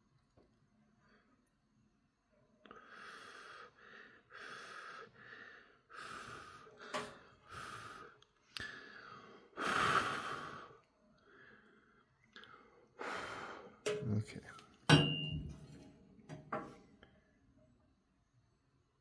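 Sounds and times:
person breathing noisily: 0:02.7 - 0:13.8.

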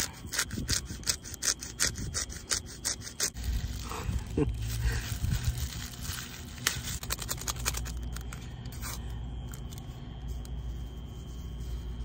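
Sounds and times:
steady low rumble: 0:03.1 - 0:12.0
paper packet crinkling and tearing: 0:03.2 - 0:08.5.

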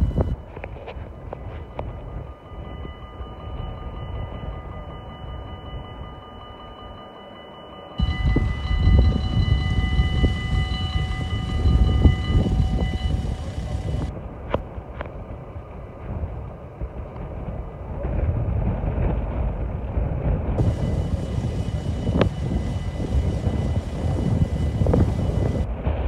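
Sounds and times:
level crossing warning bells: 0:00.0 - 0:14.1, 0:20.6 - 0:25.7
loud low rumbling noise: 0:08.0 - 0:26.0.

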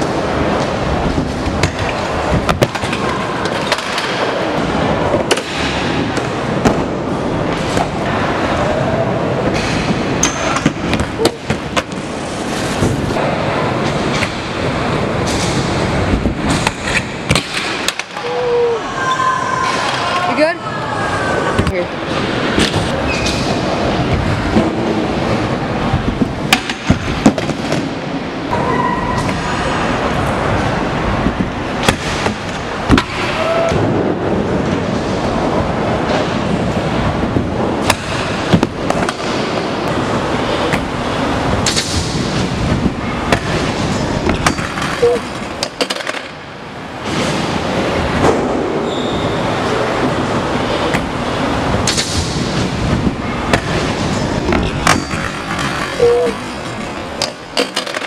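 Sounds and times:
scooter wheels rolling on ramps: 0:22.1 - 0:58.0.

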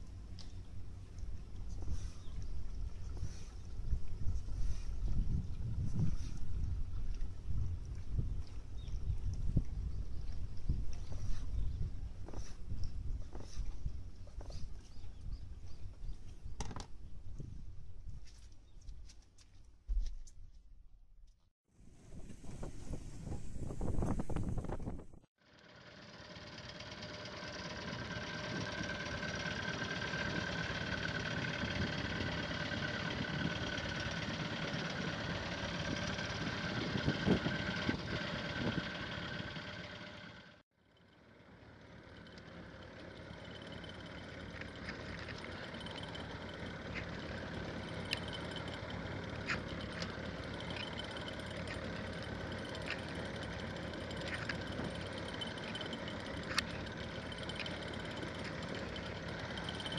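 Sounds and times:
boat engine idling: 0:25.5 - 0:59.9.

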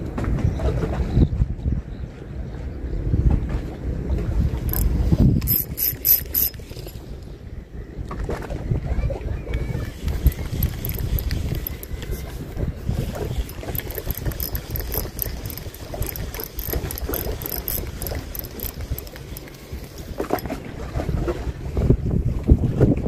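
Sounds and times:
fishing reel clicking: 0:04.6 - 0:07.0, 0:09.9 - 0:20.4
wind on microphone: 0:08.0 - 0:23.0.

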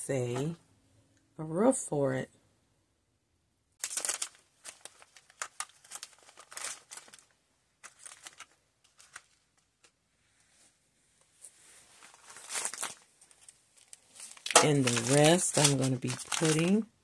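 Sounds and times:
tea sachets crinkling: 0:03.8 - 0:09.9, 0:12.0 - 0:16.9.

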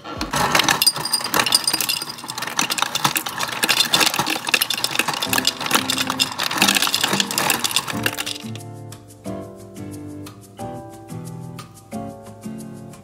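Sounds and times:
dispenser motor hum: 0:00.0 - 0:08.6
ice cubes clattering into glass jar: 0:00.2 - 0:08.6.

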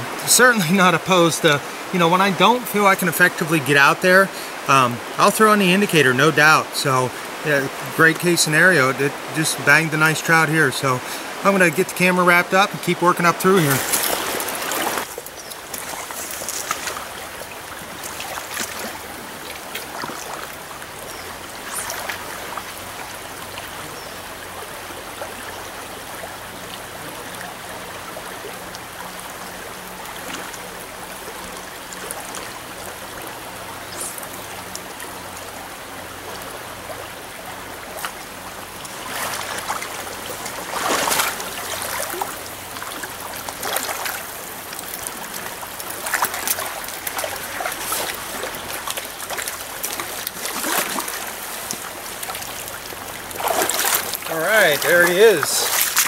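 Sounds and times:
stream running over rocks: 0:00.0 - 0:56.0
splashing from wading: 0:13.6 - 0:27.5, 0:36.3 - 0:56.0.

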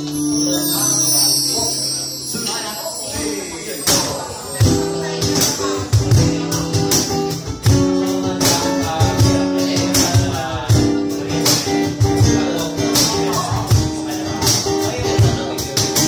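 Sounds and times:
sharp percussion hits: 0:00.0 - 0:07.8
acoustic guitar notes: 0:00.0 - 0:16.0.

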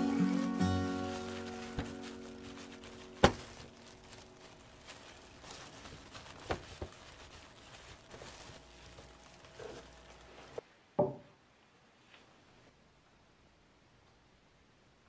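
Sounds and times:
background music: 0:00.0 - 0:04.5
mat rustling and crinkling: 0:00.0 - 0:10.6.

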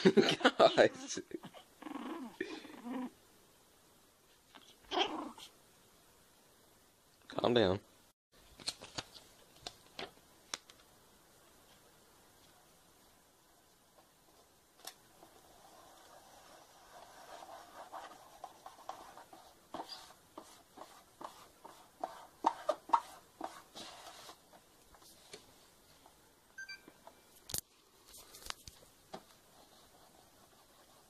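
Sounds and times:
short electronic beep: 0:26.6 - 0:26.9.

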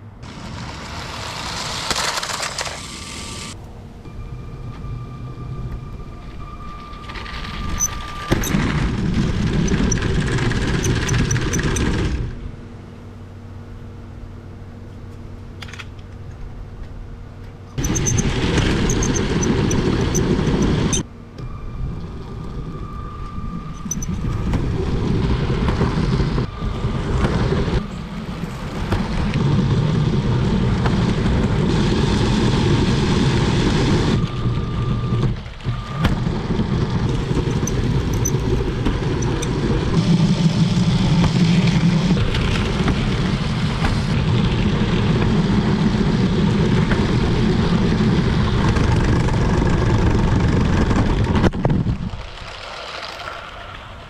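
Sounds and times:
toy train rattling on plastic track: 0:00.8 - 0:03.3, 0:52.1 - 0:54.0.

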